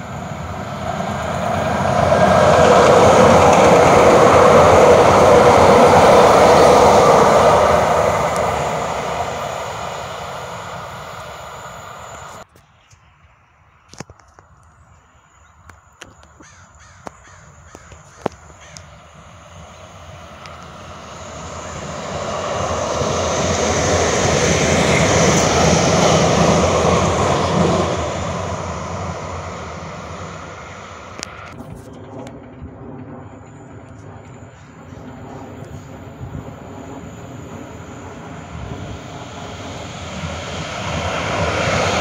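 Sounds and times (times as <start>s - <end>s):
vehicle passing by: 0.0s - 12.4s, 19.0s - 31.6s, 36.1s - 42.0s.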